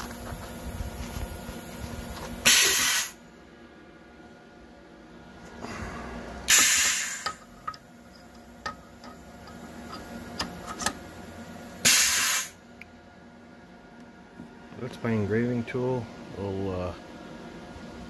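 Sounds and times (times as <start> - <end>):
pneumatic air blasts hissing: 2.4 - 3.2, 6.5 - 7.5, 11.8 - 12.6.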